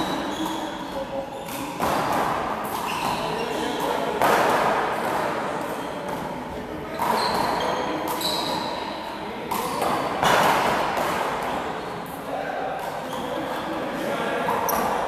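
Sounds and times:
handball hitting the wall: 1.5s - 3.2s, 3.8s - 5.4s, 9.5s - 11.6s.

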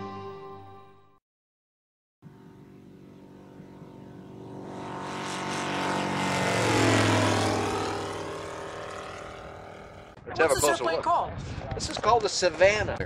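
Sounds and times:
propeller aircraft flying past: 2.2s - 10.8s.

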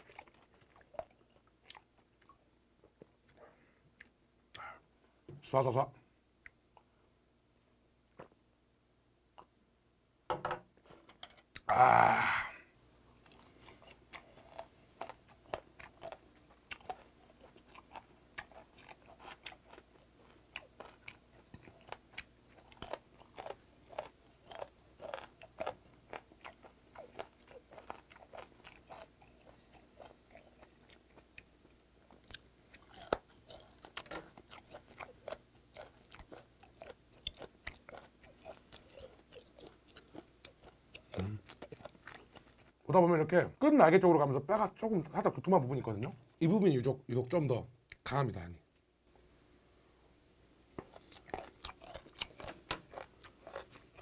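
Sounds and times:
chewing crunchy cartilage: 0.0s - 2.4s, 13.2s - 42.8s, 50.8s - 54.0s.

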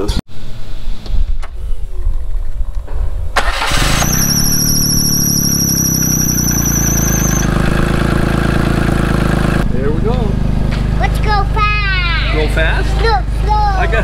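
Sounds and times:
engine starting and idling: 3.4s - 8.4s
high wavering squeal: 3.6s - 7.6s.

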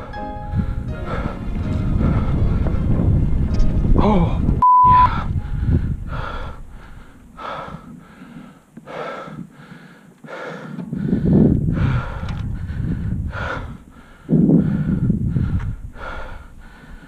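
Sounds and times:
person breathing hard: 0.0s - 3.0s, 5.1s - 17.0s
bike rolling on dirt trail: 1.1s - 4.6s.

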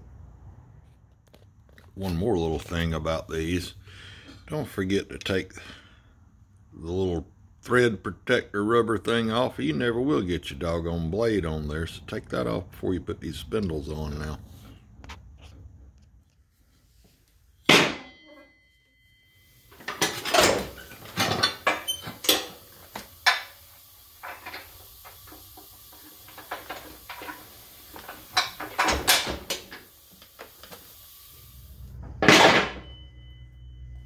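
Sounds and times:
metal tools clanking on mower deck: 19.7s - 22.6s.

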